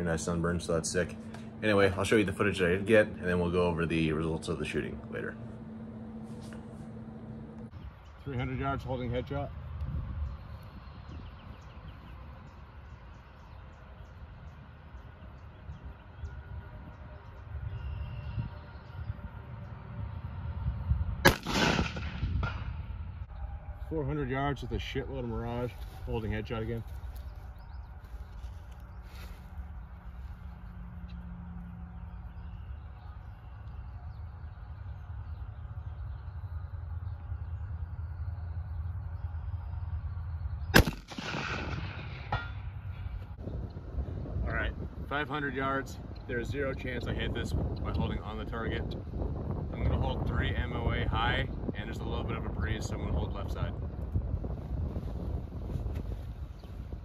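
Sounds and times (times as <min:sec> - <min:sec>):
wind rumble on microphone: 0:00.0 - 0:57.0
small birds chirping: 0:07.6 - 0:19.8, 0:23.2 - 0:41.0, 0:42.9 - 0:57.0
faint bird chirps: 0:10.5 - 0:19.2.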